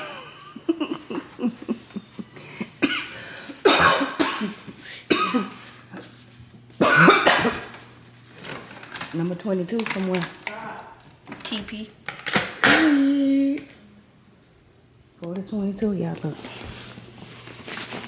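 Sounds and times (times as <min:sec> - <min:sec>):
person coughing: 0:02.6 - 0:05.7, 0:06.8 - 0:07.7.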